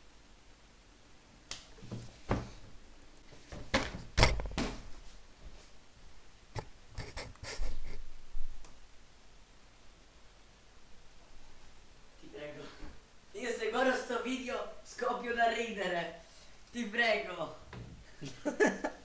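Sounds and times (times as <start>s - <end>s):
knocks and thumps: 1.8s - 2.8s, 3.4s - 5.0s.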